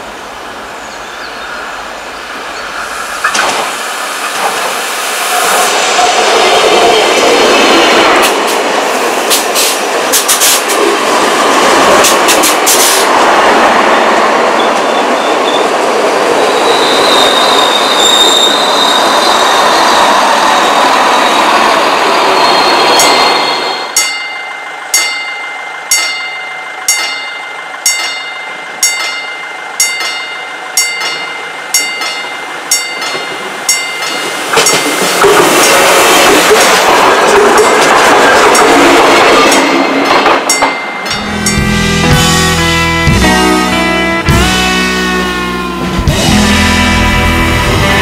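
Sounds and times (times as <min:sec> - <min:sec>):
diesel railcar approaching: 0:00.0 - 0:48.0
train rolling past: 0:00.0 - 0:48.0
wheels clicking over rail joints: 0:08.2 - 0:13.2, 0:27.9 - 0:41.2
level crossing bell ringing: 0:24.0 - 0:34.9, 0:40.5 - 0:46.9.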